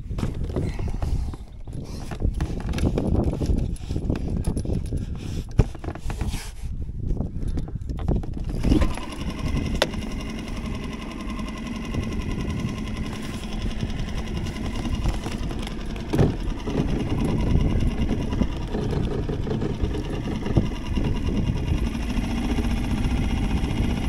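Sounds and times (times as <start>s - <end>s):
outboard motor idling: 8.2s - 24.0s.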